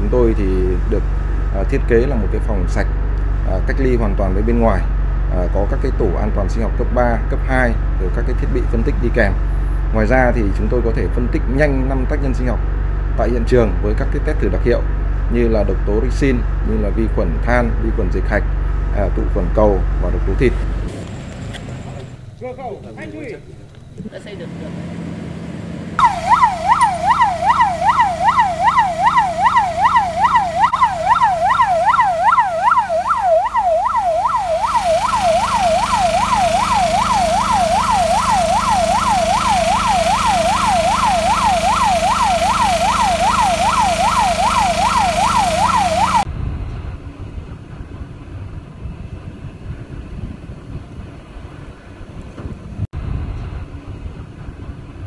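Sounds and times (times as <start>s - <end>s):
ambulance siren yelping: 26.0s - 46.3s.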